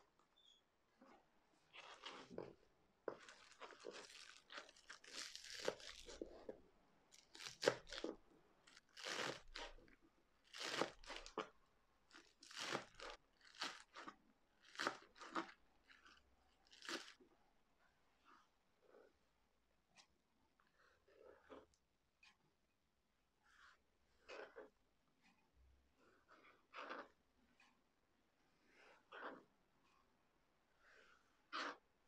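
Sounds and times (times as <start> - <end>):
knife slicing spring onions: 9.0 - 9.8, 10.5 - 11.4, 12.5 - 13.8.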